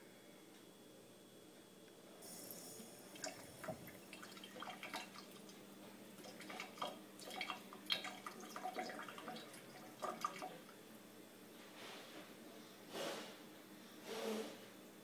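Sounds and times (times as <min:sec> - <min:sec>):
faucet trickling into a sink: 0:02.5 - 0:05.6, 0:06.2 - 0:10.7
small water splashes: 0:06.2 - 0:10.6.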